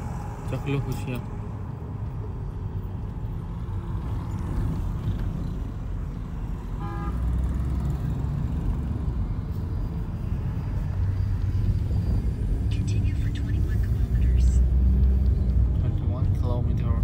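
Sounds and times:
car engine and tyre rumble: 0:00.0 - 0:17.0
vehicle horn toot: 0:06.8 - 0:07.3.

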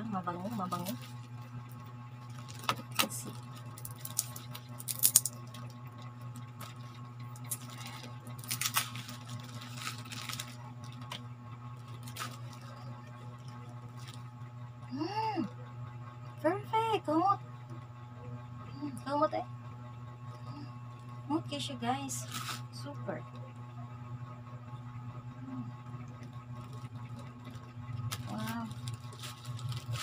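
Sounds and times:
steady low hum: 0:00.0 - 0:30.0
plastic crinkling and clicking: 0:02.3 - 0:11.2, 0:11.8 - 0:12.8, 0:26.5 - 0:30.0.

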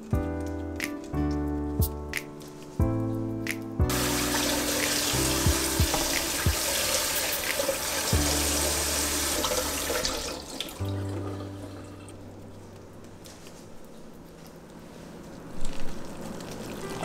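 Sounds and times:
tap water splashing in sink: 0:03.9 - 0:10.9.

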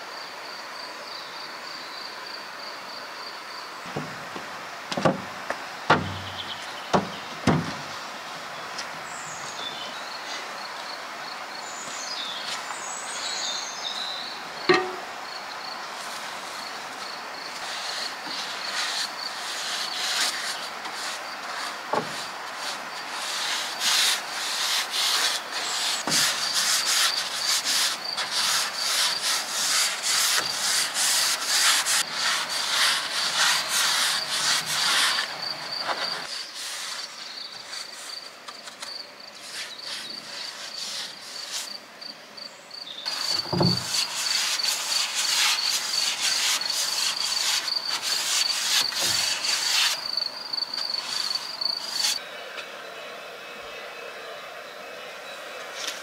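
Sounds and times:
dull knocks: 0:03.9 - 0:07.9
rapid rubbing strokes on surface: 0:16.0 - 0:38.3, 0:39.4 - 0:41.8, 0:43.1 - 0:52.2
high insect chirring: 0:42.4 - 0:52.2.

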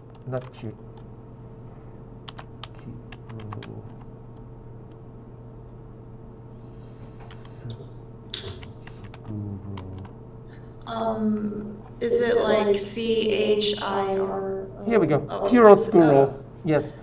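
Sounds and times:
steady low hum: 0:00.0 - 0:17.0
keyboard key clicks: 0:02.3 - 0:03.8.

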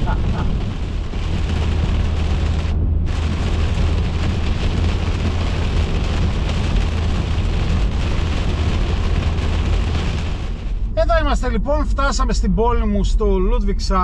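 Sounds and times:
rain hissing on wet road: 0:00.0 - 0:11.1
road and engine rumble: 0:00.0 - 0:14.0.

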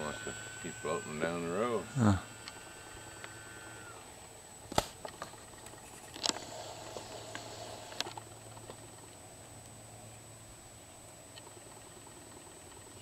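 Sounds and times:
faint steady hum: 0:00.0 - 0:13.0
sharp clicks: 0:02.4 - 0:03.9.

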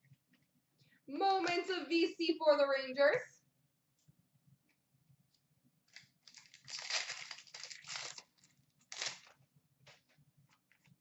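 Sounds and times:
trading cards and wrapper rustling: 0:05.9 - 0:09.4.

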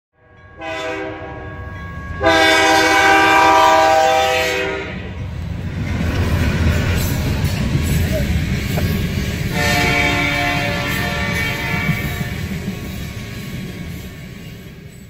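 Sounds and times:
locomotive air horn: 0:00.2 - 0:05.1, 0:09.5 - 0:12.5
locomotive engine rumble: 0:02.2 - 0:14.8
train wheels rolling: 0:04.9 - 0:15.0.

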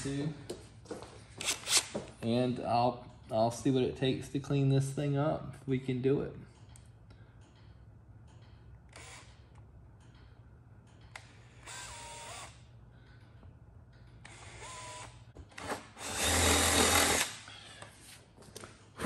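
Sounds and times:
power drill cutting wood: 0:16.0 - 0:17.4.

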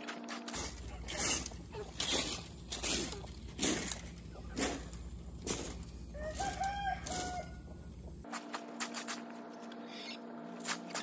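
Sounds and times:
rake scratching dirt: 0:00.0 - 0:11.0
rooster crowing: 0:06.0 - 0:08.0.

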